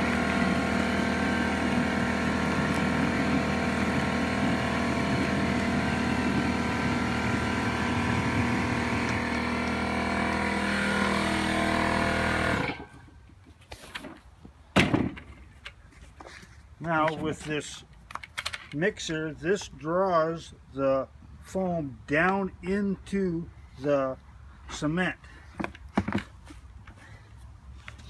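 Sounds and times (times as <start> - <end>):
foam generator mechanical hum: 0.0 - 13.2.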